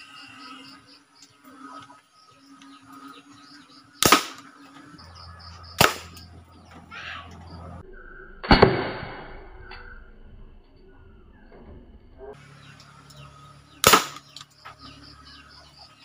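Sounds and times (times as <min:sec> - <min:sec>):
toy gun shots cracking: 0:04.0 - 0:04.5, 0:05.8 - 0:06.3, 0:08.4 - 0:09.4, 0:13.8 - 0:14.5.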